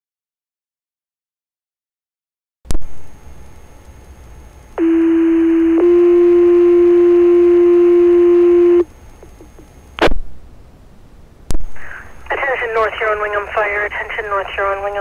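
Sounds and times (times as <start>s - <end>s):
two-tone paging tones: 4.8s - 8.8s
burst of radio static: 11.6s - 15.0s
radio hiss: 11.6s - 15.0s.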